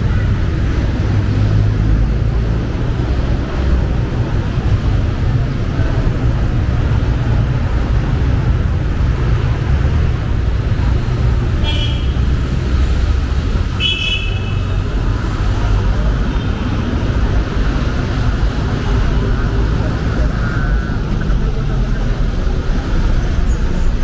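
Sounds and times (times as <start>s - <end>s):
street traffic rumble: 0.0s - 24.0s.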